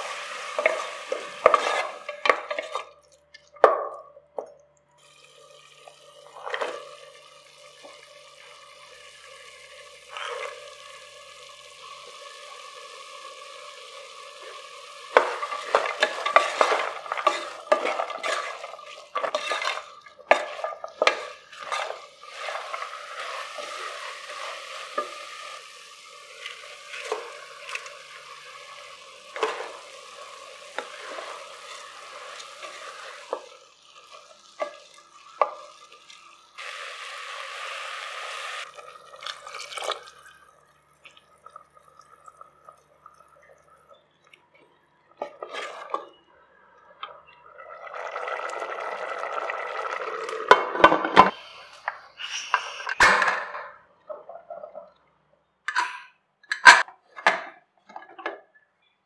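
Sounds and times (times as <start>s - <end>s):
vegetables sizzling in oil: 0.0s - 3.0s, 5.0s - 43.9s, 47.2s - 50.6s
water pouring into a pot: 0.0s - 3.7s, 5.0s - 44.2s, 45.1s - 53.0s
spatula scraping a pot: 0.6s - 2.9s, 15.1s - 25.2s, 26.4s - 28.0s, 45.2s - 46.2s.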